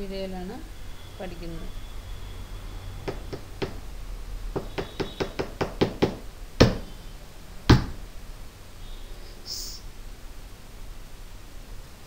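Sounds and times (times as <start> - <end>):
sharp knocks: 3.0 - 3.8, 4.5 - 6.9, 7.7 - 8.0.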